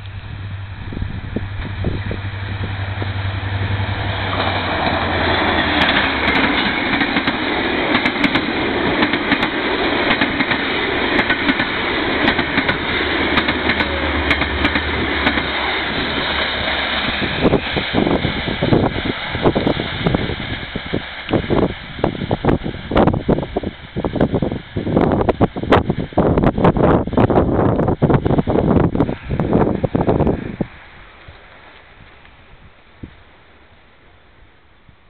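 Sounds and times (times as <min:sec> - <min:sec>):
diesel locomotive droning past: 0:00.0 - 0:24.0
train wheels clicking over rail joints: 0:01.4 - 0:23.2.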